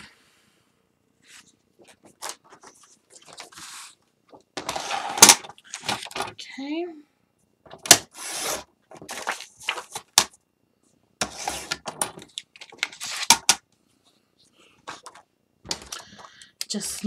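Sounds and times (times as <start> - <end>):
paper rustling and sliding: 1.2 - 4.0, 4.6 - 6.2, 7.9 - 10.2, 11.2 - 13.5.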